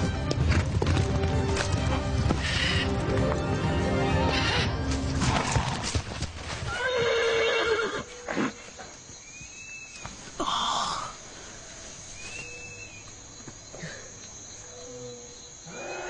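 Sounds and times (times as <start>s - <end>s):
dramatic film score: 0.0s - 6.2s
horse hoofbeats galloping: 0.0s - 7.4s
horse neighing: 4.2s - 5.9s, 6.7s - 8.6s.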